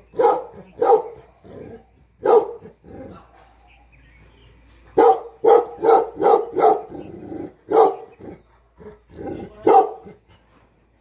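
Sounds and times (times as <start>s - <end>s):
dog barking: 0.2s - 1.2s, 2.2s - 2.7s, 5.0s - 7.0s, 7.7s - 8.1s, 9.6s - 10.2s.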